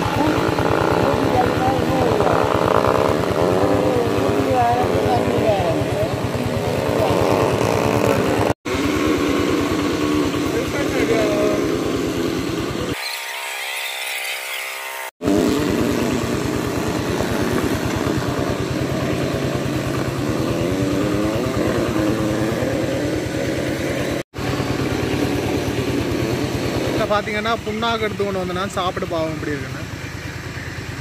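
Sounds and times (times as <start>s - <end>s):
small engine chugging: 0.0s - 31.0s.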